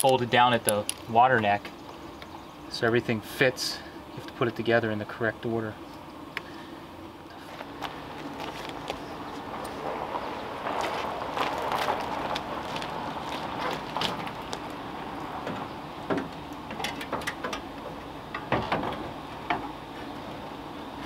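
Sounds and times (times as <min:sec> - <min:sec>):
rustling and scraping: 0:07.3 - 0:15.7.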